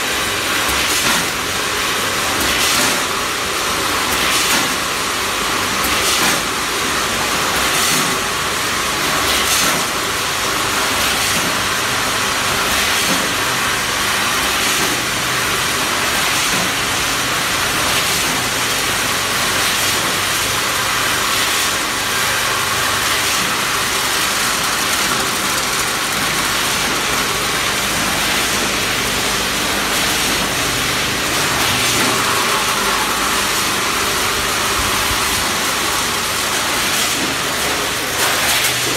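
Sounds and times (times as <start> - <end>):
faint machine hum: 0.0 - 38.9
packing machine hissing: 0.0 - 38.9.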